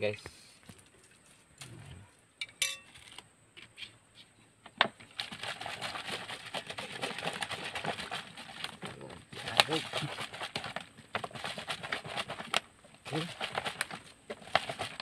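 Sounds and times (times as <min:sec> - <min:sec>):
liquid sloshing in shaken bottle: 0:05.0 - 0:15.0.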